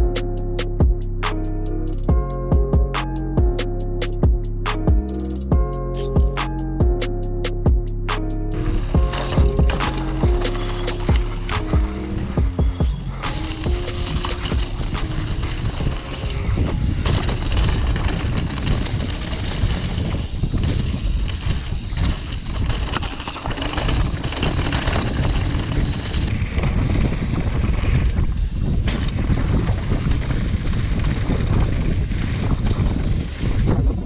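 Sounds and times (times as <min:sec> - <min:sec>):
bike clicks and rattles: 0:03.0 - 0:34.0
wind buffeting microphone: 0:08.5 - 0:34.0
tyres rumbling over dirt and leaves: 0:08.6 - 0:33.8.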